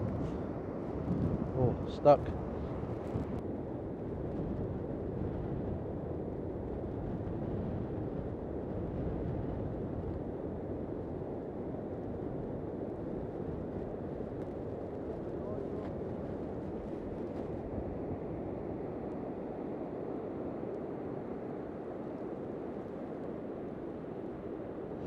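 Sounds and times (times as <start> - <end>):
wind buffeting microphone: 0.0 - 19.4.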